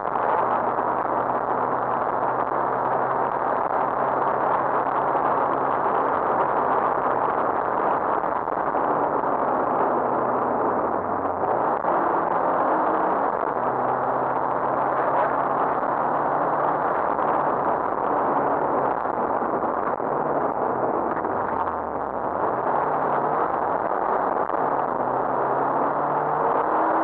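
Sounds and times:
road noise: 0:00.0 - 0:27.0
car engine revving: 0:00.3 - 0:27.0.

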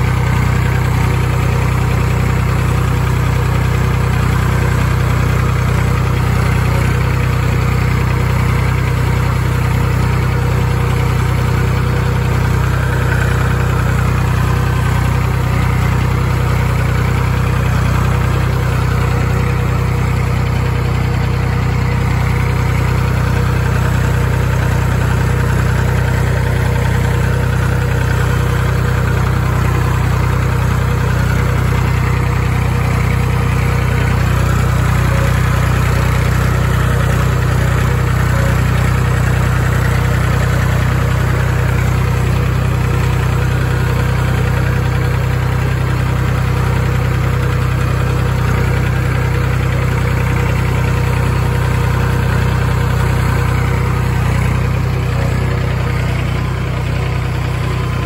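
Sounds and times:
tractor diesel engine running: 0:00.0 - 0:58.0.

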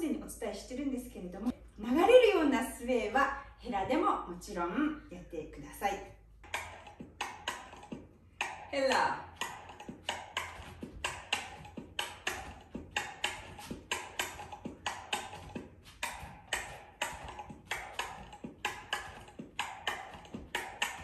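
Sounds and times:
clicking percussion beat: 0:06.4 - 0:21.0.

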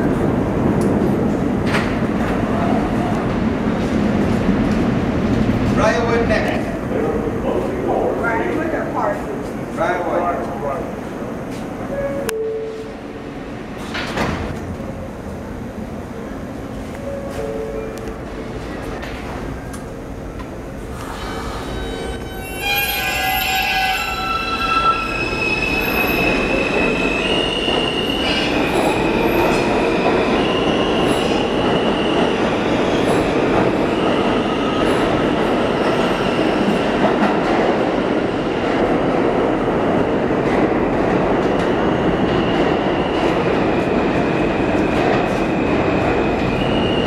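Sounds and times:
train cars rumbling and clattering: 0:00.0 - 0:47.0
train wheels squealing: 0:21.1 - 0:35.1, 0:46.4 - 0:47.0.

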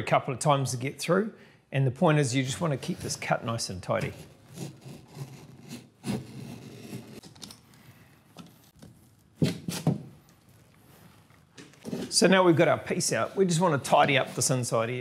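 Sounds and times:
knife scoring plasterboard: 0:04.0 - 0:10.0, 0:11.1 - 0:12.3, 0:13.0 - 0:15.0.

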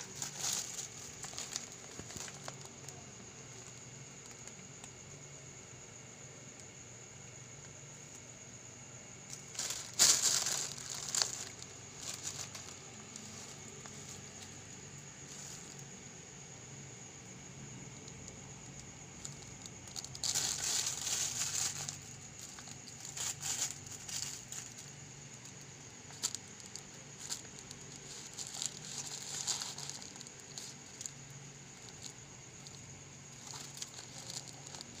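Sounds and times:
plastic bag crinkling: 0:00.0 - 0:04.6, 0:09.3 - 0:14.6, 0:19.2 - 0:24.9, 0:26.1 - 0:35.0
newspaper rustling: 0:09.3 - 0:14.6, 0:19.3 - 0:24.8, 0:26.1 - 0:35.0.

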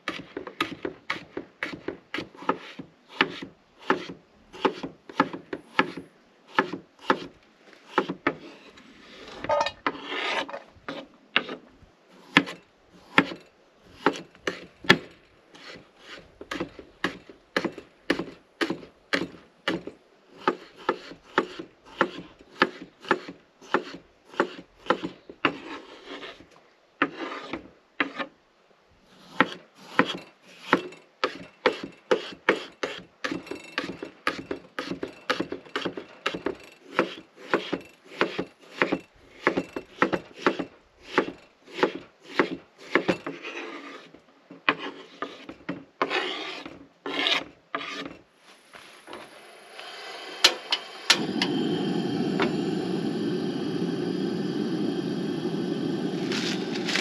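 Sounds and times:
knife chopping on wooden board: 0:00.1 - 0:07.3, 0:16.5 - 0:25.6, 0:33.8 - 0:43.2
potatoes frying hiss: 0:48.6 - 0:57.0.

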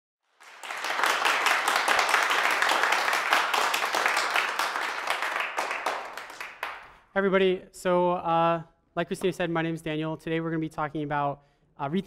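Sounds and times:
audience applauding: 0:00.4 - 0:07.0.

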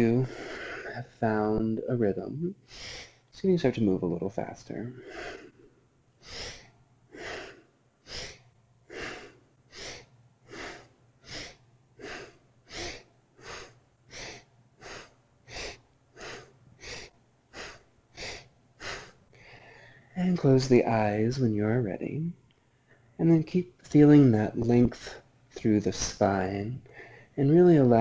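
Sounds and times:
person breathing sharply through nose: 0:00.2 - 0:00.9, 0:02.7 - 0:03.3, 0:05.0 - 0:05.6, 0:06.2 - 0:20.2, 0:26.9 - 0:27.4.

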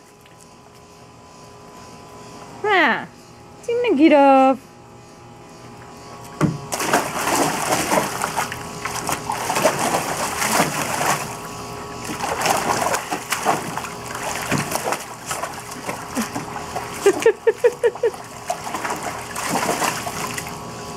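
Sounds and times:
puppy splashing in water: 0:06.2 - 0:20.6
water sloshing: 0:06.2 - 0:20.6.

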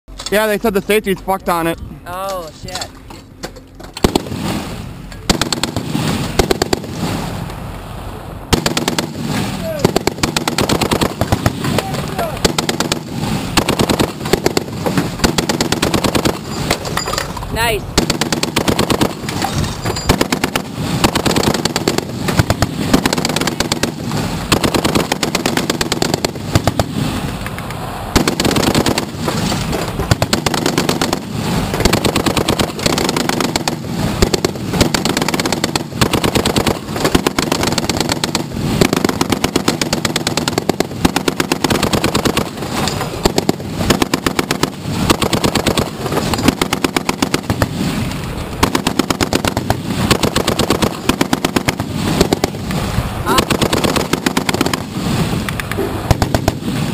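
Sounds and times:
heavy machine gun bursts: 0:04.0 - 0:07.2, 0:08.5 - 0:27.1, 0:28.1 - 0:48.0, 0:48.6 - 0:52.7, 0:53.3 - 0:55.1.

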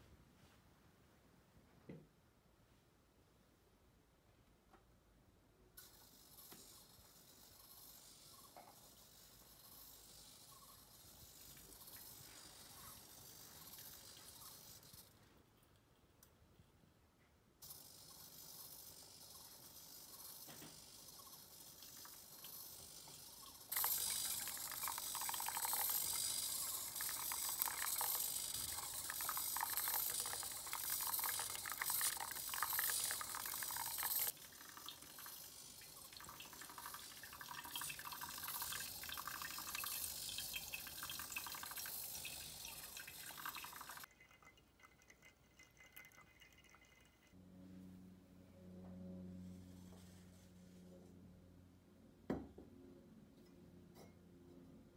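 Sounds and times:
water trickling onto coffee grounds: 0:09.6 - 0:14.9, 0:19.3 - 0:47.4.

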